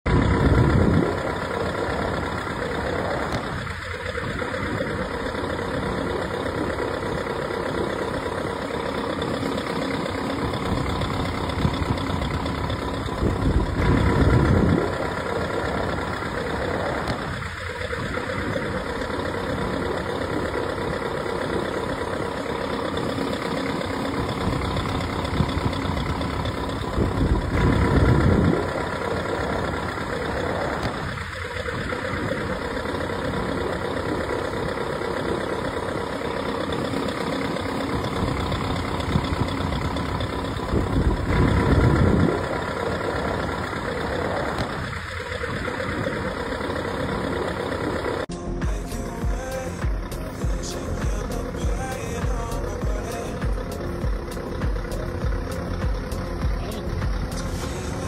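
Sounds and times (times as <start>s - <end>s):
large truck engine running: 0.0s - 58.0s.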